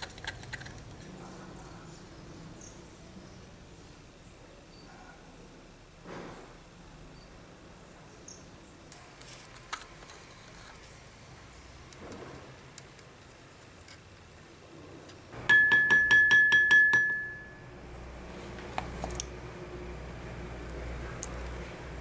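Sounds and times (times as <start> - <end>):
ringing tone: 15.4 - 17.7.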